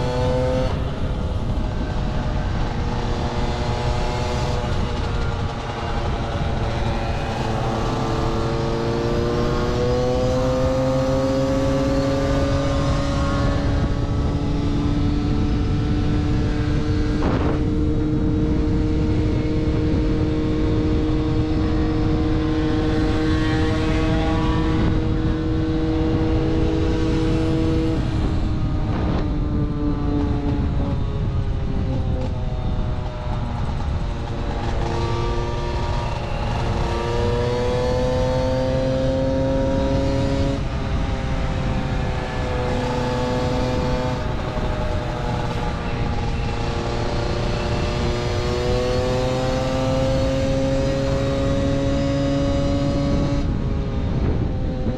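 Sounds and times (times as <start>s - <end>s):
wind rumble on microphone: 0.0s - 54.9s.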